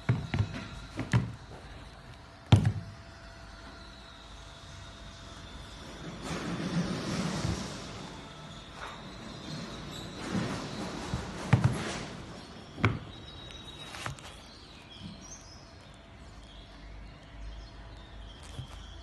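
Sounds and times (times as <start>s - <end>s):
sneaker rubbing and rustling: 6.3s - 15.3s, 18.4s - 19.0s.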